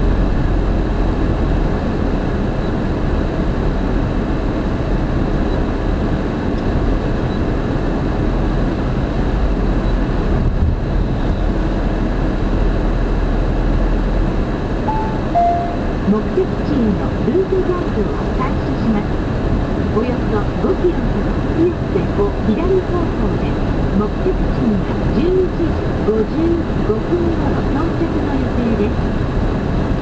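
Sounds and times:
car cabin road noise: 0.0s - 30.0s
two-note falling chime: 14.9s - 16.0s.

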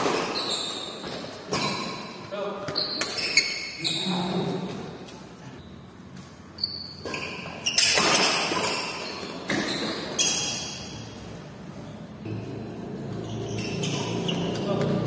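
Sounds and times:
rackets hitting shuttlecock: 0.0s - 3.8s, 6.2s - 11.0s.

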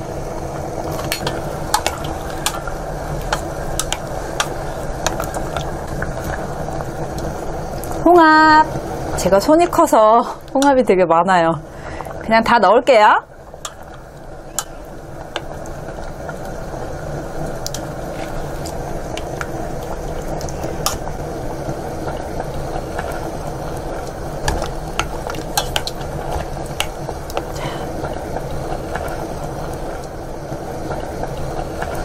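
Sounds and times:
broth bubbling in a pot: 0.0s - 32.0s.

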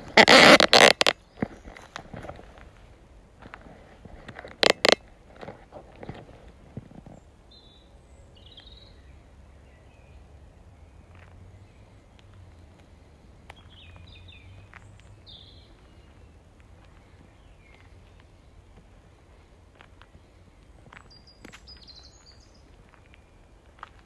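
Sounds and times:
bird chirps: 20.8s - 23.5s.

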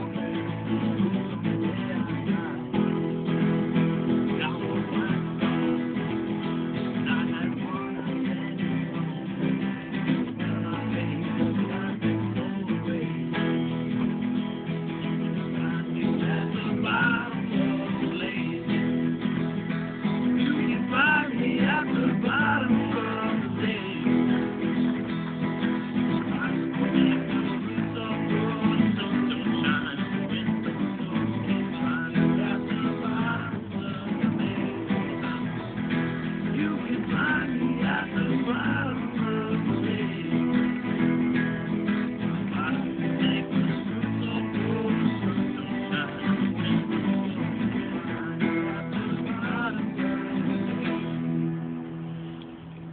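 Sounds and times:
man singing: 0.0s - 51.7s
acoustic guitars strumming: 0.0s - 52.9s.

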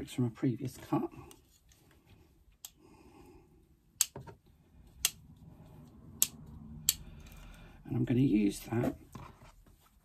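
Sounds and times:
small metallic clicks: 6.1s - 7.6s.

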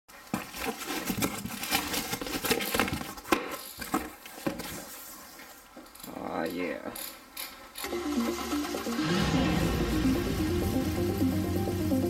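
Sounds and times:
paper packing crackling: 0.1s - 4.9s
cardboard flaps scraping: 0.1s - 5.7s.

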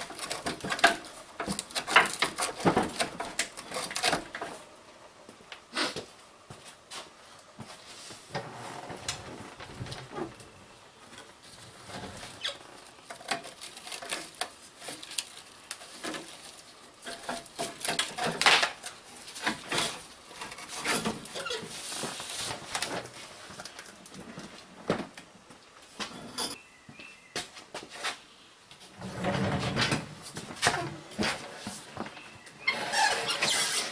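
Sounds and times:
clicks and scrapes on metal lines: 11.9s - 23.0s.

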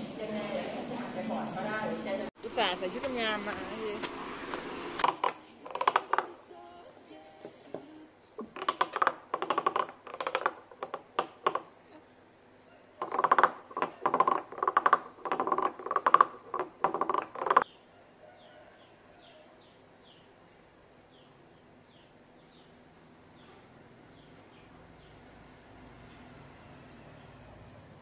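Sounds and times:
wooden guiro rasping: 5.0s - 6.4s, 13.0s - 17.6s.

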